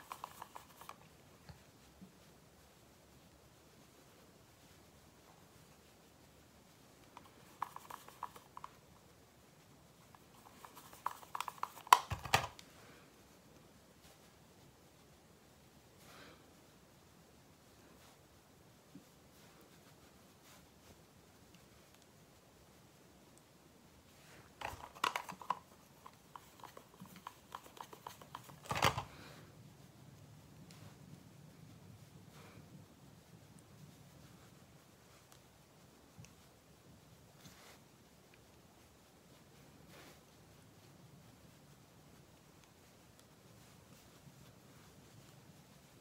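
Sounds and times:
makeup items clicking and tapping: 0:00.0 - 0:01.0, 0:07.2 - 0:08.8, 0:10.3 - 0:12.6, 0:24.6 - 0:29.1.

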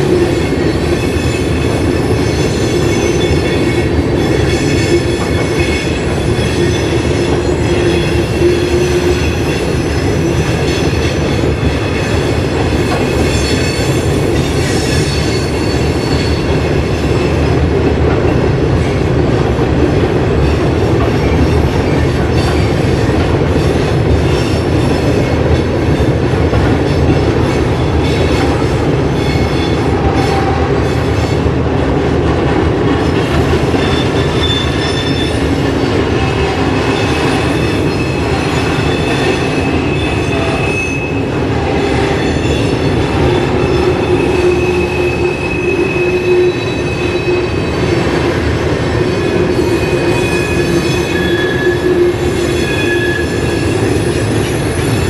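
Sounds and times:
freight train rumble: 0:00.0 - 0:55.0
high wheel squeal: 0:33.8 - 0:35.5, 0:36.2 - 0:47.9, 0:49.3 - 0:55.0.

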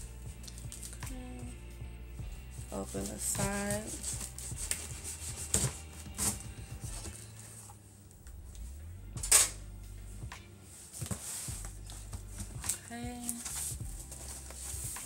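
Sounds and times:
scissors cutting packing tape: 0:00.4 - 0:01.2.

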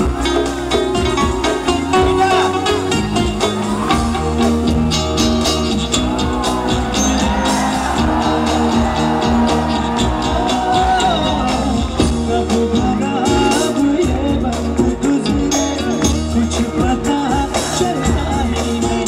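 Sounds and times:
live band music: 0:00.0 - 0:19.0
man singing long notes: 0:10.3 - 0:19.0.

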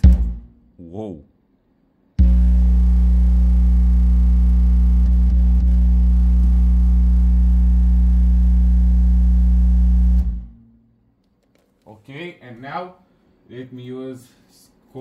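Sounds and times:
transformer humming loudly: 0:02.2 - 0:10.5.

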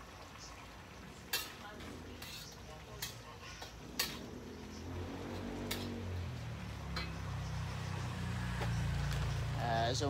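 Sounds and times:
metal spatula clinking on wok: 0:01.3 - 0:04.3, 0:06.9 - 0:07.4.

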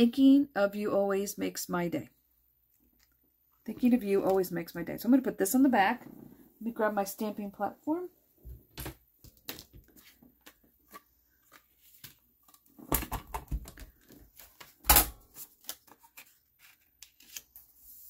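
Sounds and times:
paper handling: 0:13.9 - 0:18.0.

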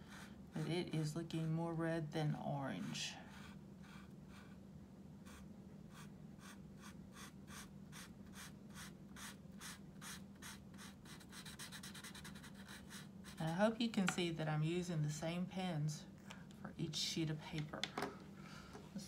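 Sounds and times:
faint low hum: 0:00.0 - 0:19.0
marker scratching on paper: 0:05.2 - 0:13.7.

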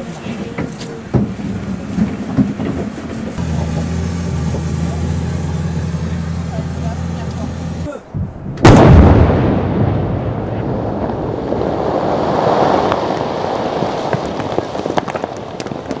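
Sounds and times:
explosion blast with rumble: 0:08.1 - 0:16.0
falling debris ticking: 0:11.0 - 0:16.0.

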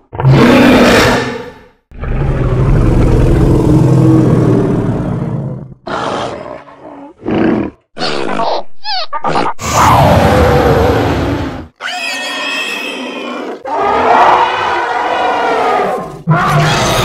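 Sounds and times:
long low animal roar: 0:02.0 - 0:07.8.

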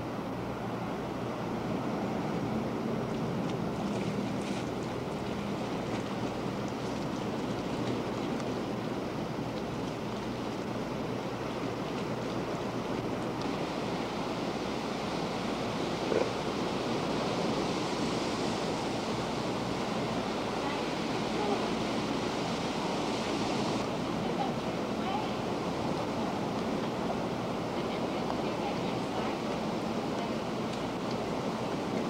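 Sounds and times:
ocean surf rushing: 0:10.3 - 0:32.0.

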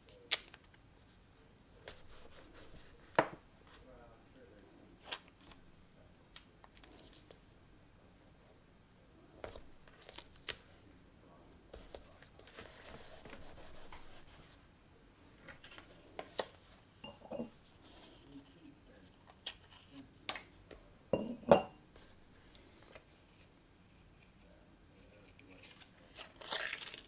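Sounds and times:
paper rustling: 0:11.7 - 0:14.6.

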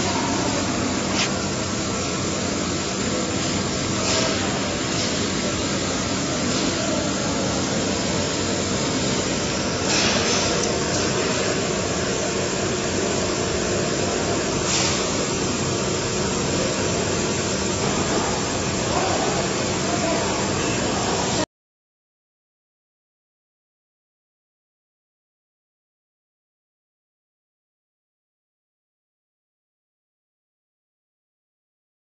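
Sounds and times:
factory machinery hum: 0:00.0 - 0:21.5.

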